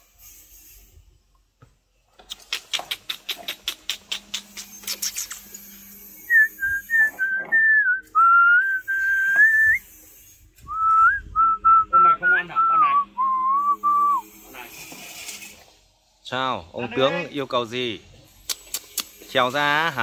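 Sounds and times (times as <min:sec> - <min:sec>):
person whistling a tune: 0:06.2 - 0:09.9, 0:10.6 - 0:14.2.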